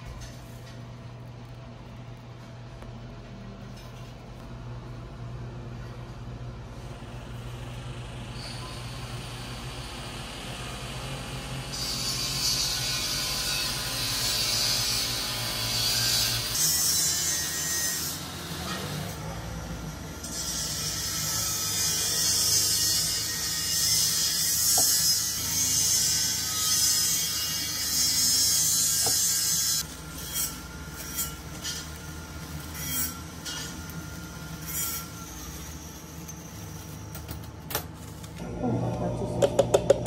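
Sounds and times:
low steady hum: 35.9s - 40.0s.

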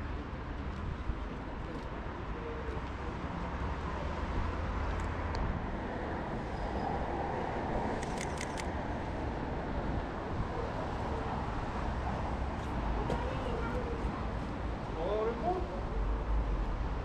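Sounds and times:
street background rumble: 0.0s - 17.0s
camera shutter clicks: 8.0s - 8.7s.

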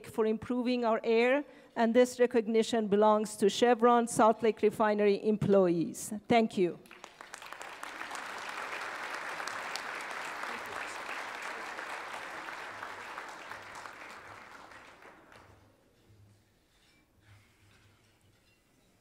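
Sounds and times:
audience applauding: 6.9s - 15.6s.

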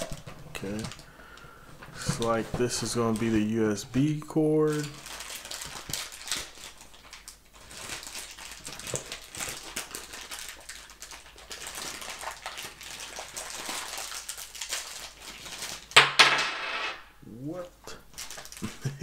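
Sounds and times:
plastic bag crinkling: 2.0s - 16.0s, 18.1s - 19.0s.

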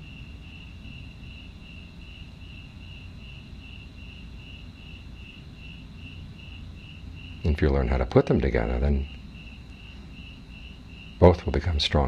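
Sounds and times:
cricket chirping: 0.0s - 12.0s
low background hum: 0.0s - 12.0s.

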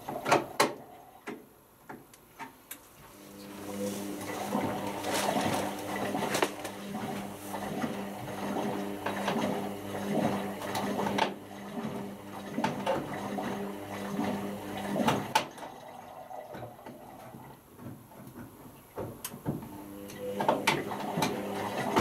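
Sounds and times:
washing machine motor hum: 3.0s - 22.0s
laundry knocking and sloshing: 3.8s - 19.7s.

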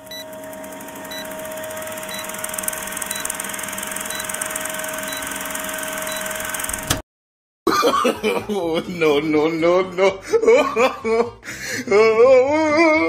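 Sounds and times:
film projector clatter and hiss: 0.0s - 7.0s
steady hum: 0.0s - 7.0s
short high beeps: 1.1s - 1.4s, 2.0s - 3.4s, 4.0s - 5.4s, 6.0s - 6.6s.

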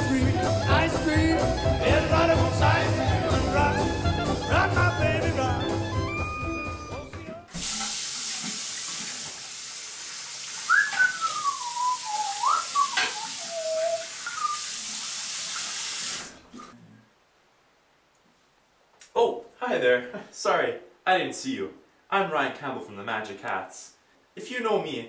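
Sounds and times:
music with steady beat: 0.0s - 7.5s
tap running into sink: 7.5s - 9.5s, 12.7s - 13.4s
person whistling: 10.7s - 14.6s.

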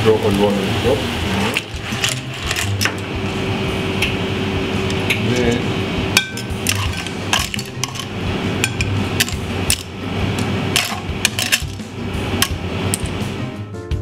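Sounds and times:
steady background hum: 0.0s - 14.0s
tongs and shells clinking on metal: 1.5s - 2.9s, 6.2s - 9.9s, 10.8s - 11.8s.

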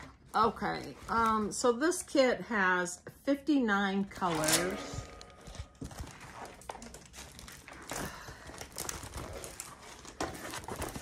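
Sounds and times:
plastic packaging crinkling: 4.3s - 11.0s.

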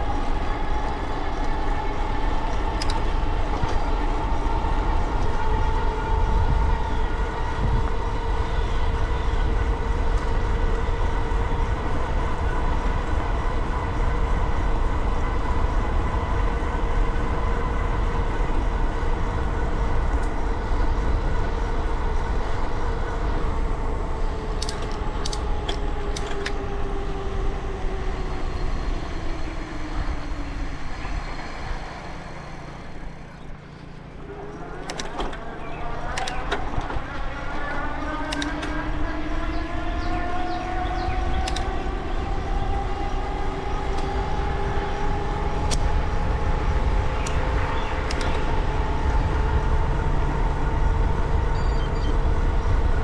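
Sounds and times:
vehicle whine: 0.0s - 53.0s
vehicle wind and road rumble: 0.0s - 53.0s
sharp clicks: 24.6s - 26.6s, 38.2s - 38.8s, 41.4s - 41.7s, 48.0s - 48.5s.

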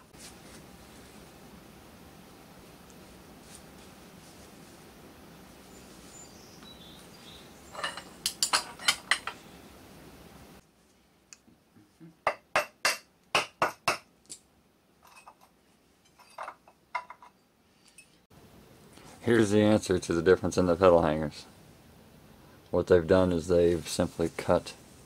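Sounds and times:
hammer striking metal: 12.3s - 14.1s.

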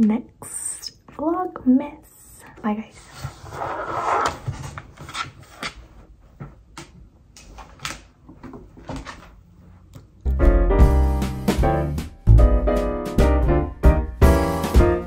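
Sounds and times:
piano music: 10.3s - 15.0s.

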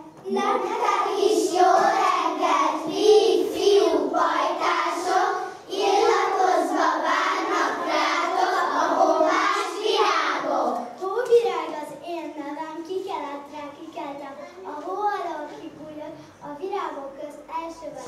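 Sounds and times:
children singing: 0.2s - 10.9s.

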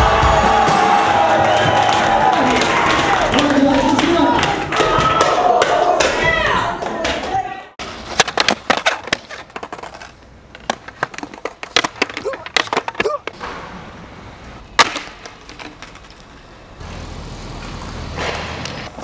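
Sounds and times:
skateboard clacking on pavement: 7.0s - 13.4s, 14.8s - 16.4s.

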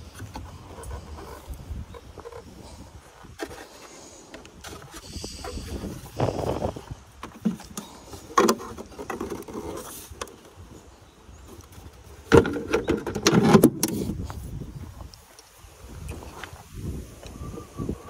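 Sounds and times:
plastic clicks and scrapes: 7.2s - 10.4s.

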